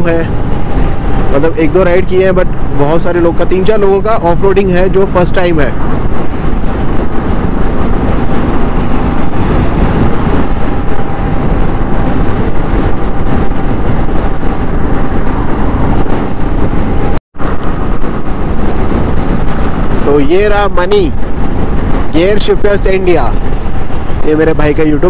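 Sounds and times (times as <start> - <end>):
motorcycle engine and road noise: 0.0 - 25.0
wind on microphone: 0.0 - 25.0.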